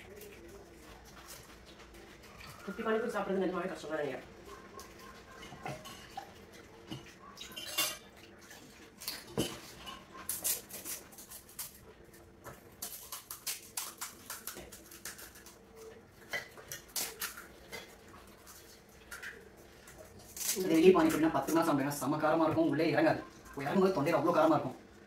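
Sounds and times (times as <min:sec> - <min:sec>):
plates bowls and spoons clinking: 0:04.9 - 0:08.3, 0:09.1 - 0:10.2.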